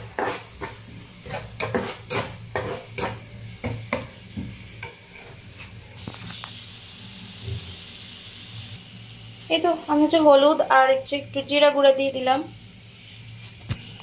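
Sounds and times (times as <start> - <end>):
spatula scraping frying pan: 0.0 - 5.8
onions sizzling in oil: 0.0 - 14.0.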